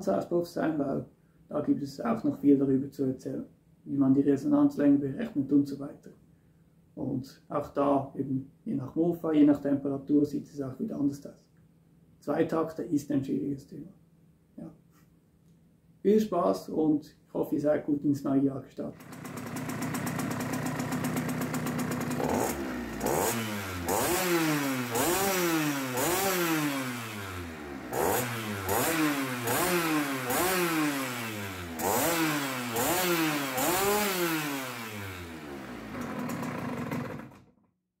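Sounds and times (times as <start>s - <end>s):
moped engine idling and revving: 19.0s - 37.6s.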